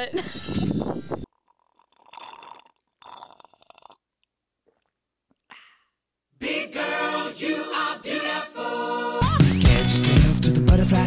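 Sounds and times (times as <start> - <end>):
pop song with singing: 6.4 - 11.0.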